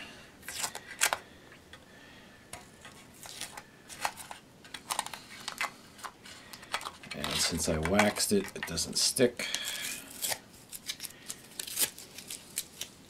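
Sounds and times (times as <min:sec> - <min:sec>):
tape peeling scratches and clicks: 0:10.1 - 0:13.0.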